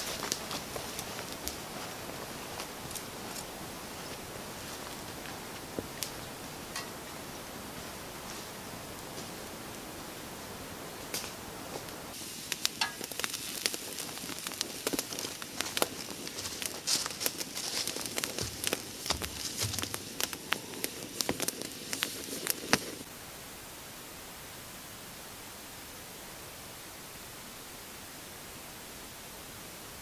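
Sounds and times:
campfire crackling and popping: 0.0s - 9.5s, 11.0s - 23.1s
soft steady hiss: 0.0s - 30.0s.

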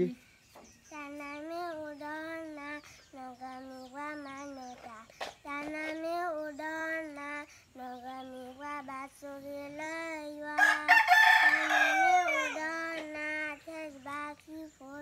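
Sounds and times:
girl singing held notes: 0.9s - 15.0s
rooster crowing: 10.5s - 12.8s.

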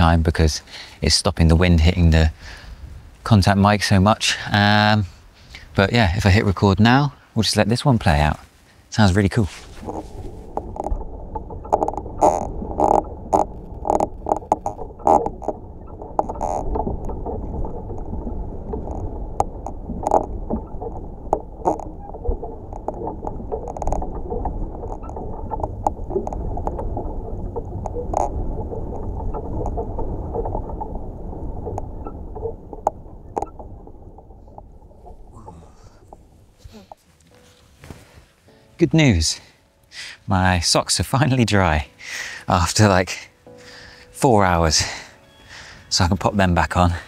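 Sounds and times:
low rumble of wood flexing: 9.1s - 37.0s
branches clicking and knocking: 9.3s - 17.4s.

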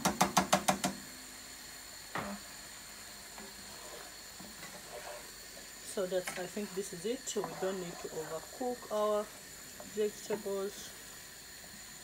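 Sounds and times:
utensils knocking on frying pan: 0.0s - 1.0s
faint steady hiss: 0.0s - 12.0s.

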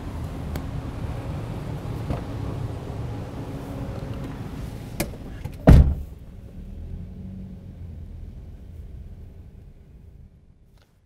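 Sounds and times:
car idling low rumble: 0.0s - 10.9s
car door slamming: 5.0s - 6.2s.

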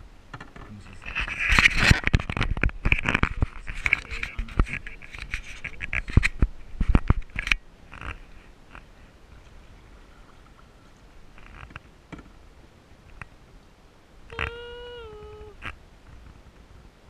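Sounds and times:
paddle swishing in water: 8.4s - 11.1s.

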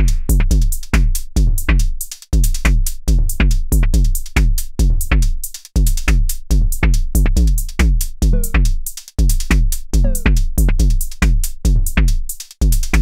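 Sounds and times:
drum machine pitch-dropping hits: 0.0s - 1.9s, 6.8s - 13.0s.

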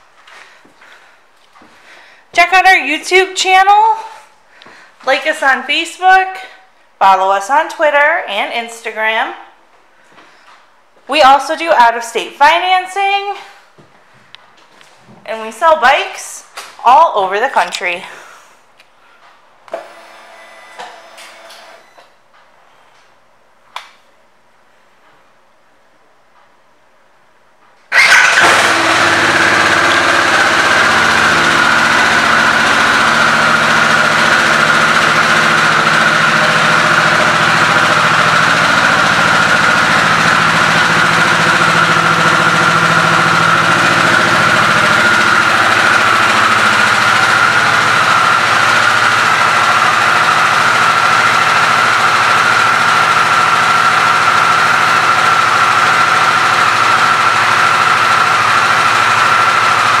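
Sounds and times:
motorcycle engine idling: 27.9s - 60.0s.

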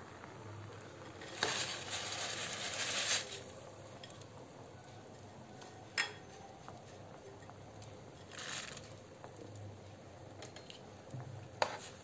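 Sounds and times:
gas stove hiss: 0.0s - 4.4s
water boiling in a pot: 0.0s - 12.0s.

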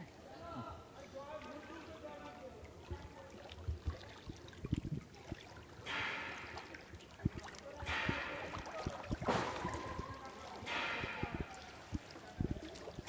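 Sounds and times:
water splashing and sloshing: 0.8s - 13.0s.

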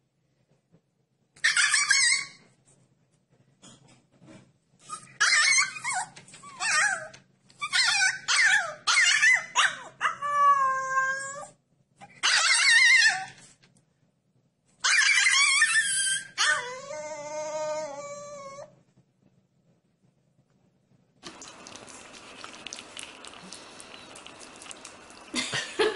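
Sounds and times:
puppy howling and yelping: 4.9s - 11.6s, 12.2s - 13.4s, 14.8s - 18.7s.

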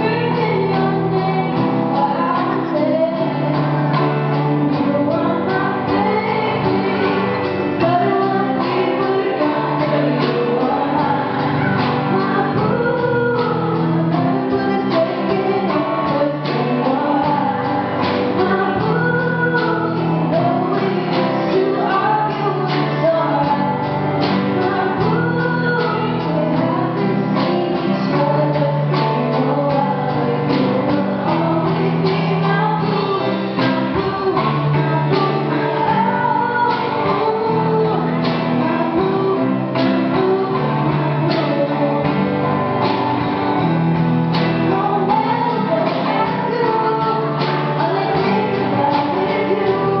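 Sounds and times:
drum kit beat: 0.0s - 50.0s
electric guitars: 0.0s - 50.0s
keyboard: 0.0s - 50.0s
woman singing: 0.0s - 50.0s.

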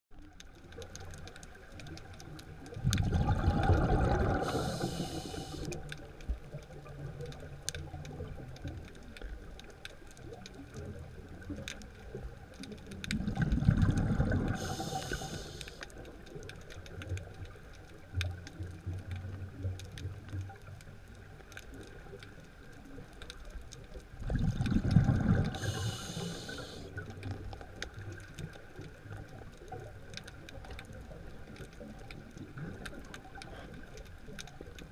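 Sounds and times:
exhaled bubbles rumbling: 0.1s - 22.8s, 23.8s - 34.9s
faint clicking: 0.1s - 34.9s
diver breathing through regulator: 3.9s - 5.8s, 14.3s - 15.8s, 25.1s - 26.9s.

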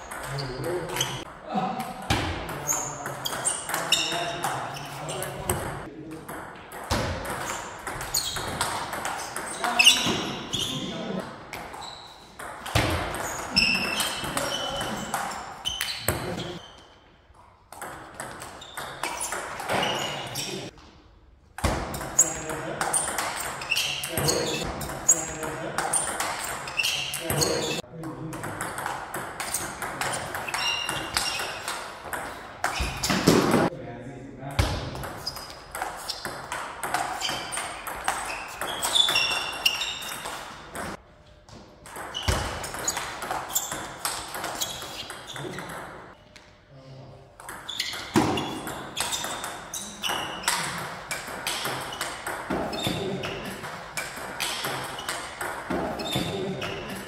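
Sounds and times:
table tennis ball rally: 0.0s - 16.8s, 17.7s - 20.8s, 21.5s - 33.7s, 34.6s - 41.0s, 41.8s - 46.2s, 47.4s - 57.0s
ping pong ball hits: 0.1s - 10.3s
ball bouncing on table: 47.4s - 57.0s.

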